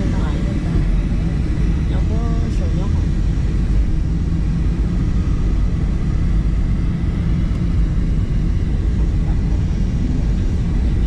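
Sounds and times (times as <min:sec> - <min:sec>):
jet engines rumbling in cabin: 0:00.0 - 0:11.0.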